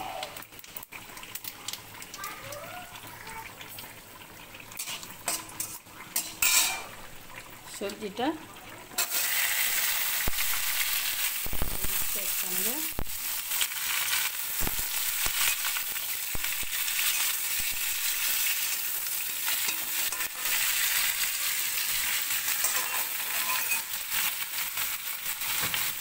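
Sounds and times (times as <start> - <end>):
vegetables sizzling in hot oil: 0.0 - 26.0
metal spatula scraping a pan: 4.8 - 6.9, 19.4 - 24.4.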